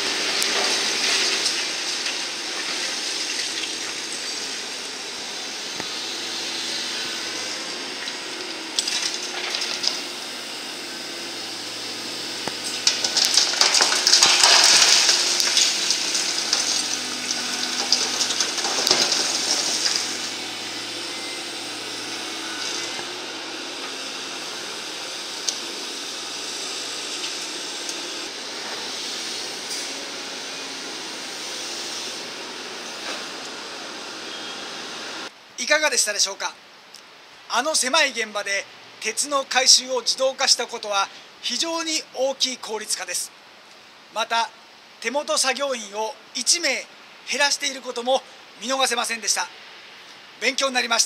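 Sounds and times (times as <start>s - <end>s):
diesel engine running: 0.0s - 35.3s
rubble clattering into truck bed: 12.8s - 16.8s, 17.7s - 20.1s.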